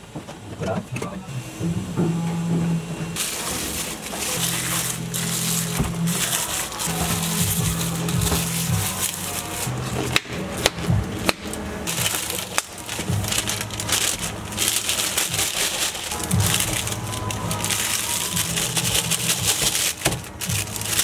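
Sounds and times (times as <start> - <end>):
plastic wrap crinkling: 3.2 - 21.0.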